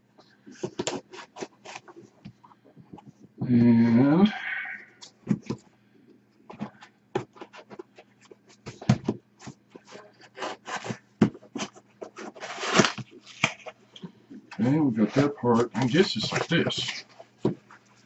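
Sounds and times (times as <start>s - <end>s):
cardboard rubbing: 0.5s - 2.1s, 7.2s - 13.7s
knife cutting packing tape: 11.6s - 13.7s.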